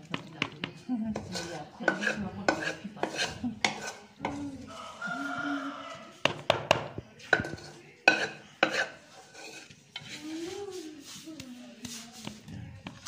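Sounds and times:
spoon knocking on plastic tub: 6.2 - 8.3.

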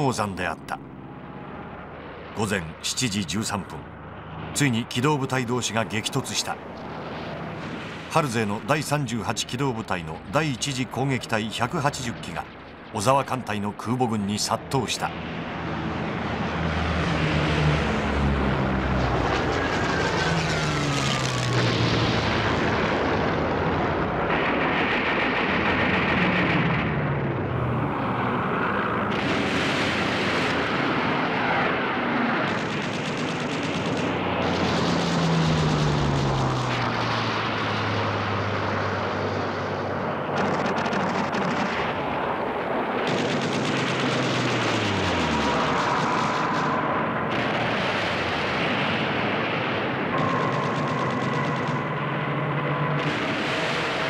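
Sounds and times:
propeller plane engines droning: 0.0 - 54.0
gunfire: 29.1 - 31.4, 32.2 - 37.4, 40.3 - 54.0.

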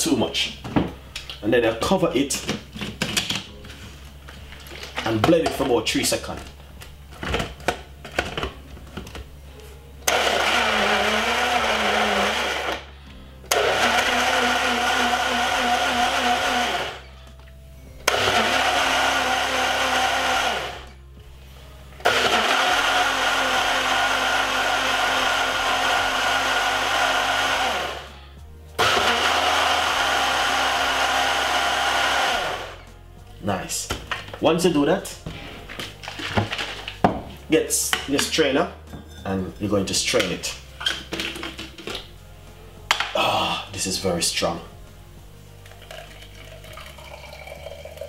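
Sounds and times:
blender running: 10.0 - 17.1, 18.0 - 21.0, 22.0 - 28.2, 28.8 - 32.9, 45.8 - 48.0.

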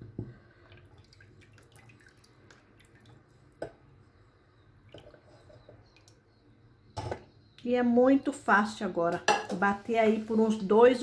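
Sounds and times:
liquid trickling into jar: 0.6 - 3.3.

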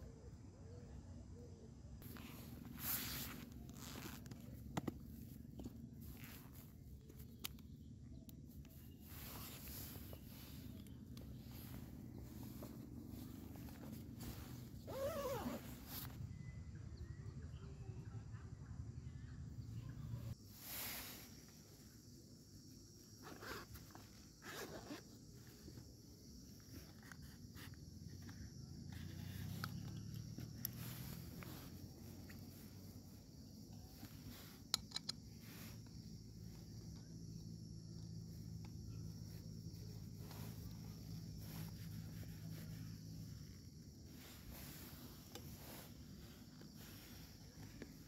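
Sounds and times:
faint low hum: 0.0 - 48.0
sharp clicks of gas lantern fitting: 34.7 - 35.2.

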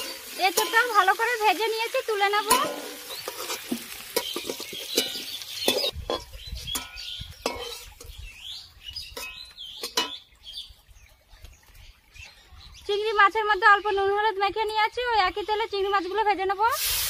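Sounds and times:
metal spatula scraping in wok: 2.5 - 8.1.

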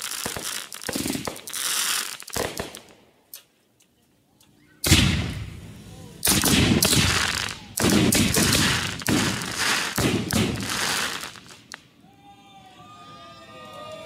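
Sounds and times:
firework crackle: 0.0 - 3.4, 4.8 - 11.9
firework booms: 4.8 - 11.7.

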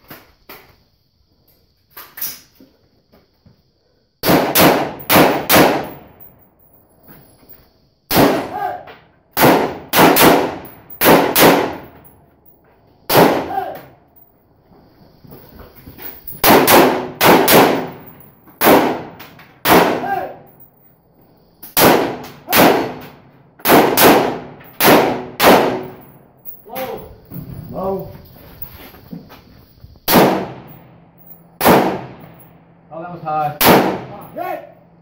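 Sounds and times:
rifle shots under tin roof: 4.2 - 6.3, 8.1 - 12.1, 13.1 - 14.0, 16.3 - 20.5, 21.7 - 26.4, 30.0 - 35.0
metallic ring: 25.8 - 27.8, 30.7 - 31.6.

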